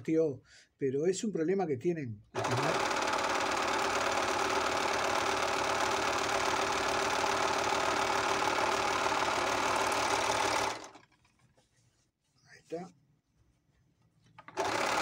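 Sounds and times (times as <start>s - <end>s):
overlock sewing machine whirring: 2.4s - 11.4s, 14.5s - 15.0s.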